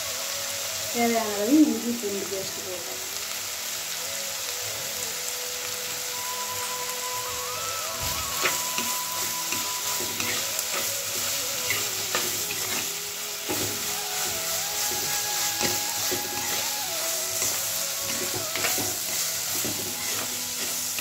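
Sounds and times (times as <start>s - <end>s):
food sizzling in hot oil: 0.0s - 21.0s
steel spoon scraping pot: 9.5s - 13.7s.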